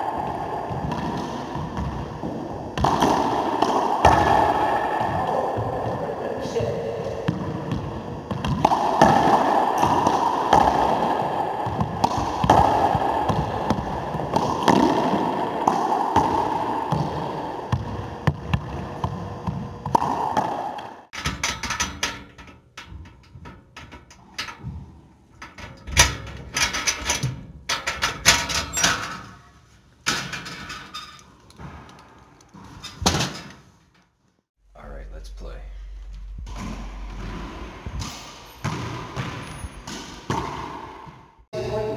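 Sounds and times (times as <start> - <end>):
racquetball hits echoing: 0.0 - 23.5, 36.2 - 41.4.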